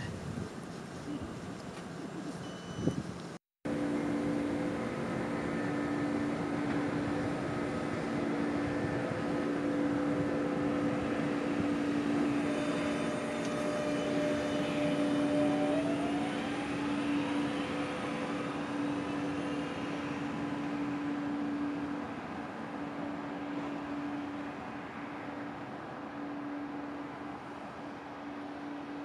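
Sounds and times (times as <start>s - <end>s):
train electrical hum: 0.0s - 29.0s
passing train rushing: 3.7s - 29.0s
rising train whine: 3.7s - 29.0s.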